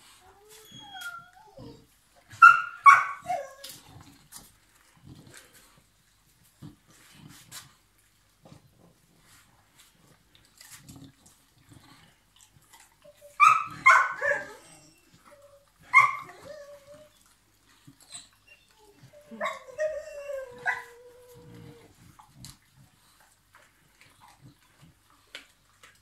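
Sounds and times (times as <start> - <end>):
dog whining: 0.2 - 4.0, 13.0 - 17.3, 17.9 - 22.0.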